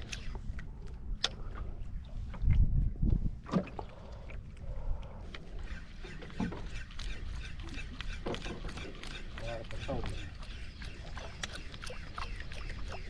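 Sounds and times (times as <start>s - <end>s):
water lapping against boat hull: 0.0s - 13.0s
wind buffeting microphone: 0.4s - 5.1s.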